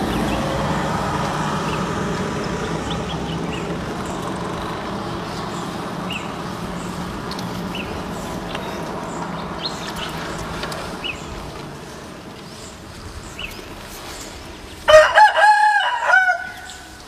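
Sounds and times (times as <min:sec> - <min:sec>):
rooster crowing: 0:14.8 - 0:17.0.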